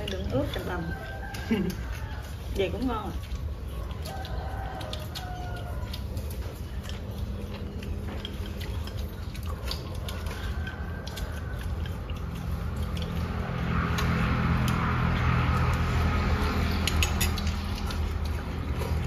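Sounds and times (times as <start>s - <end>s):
chickens clucking: 0.0s - 13.2s
chopsticks clicking on bowls: 0.0s - 19.0s.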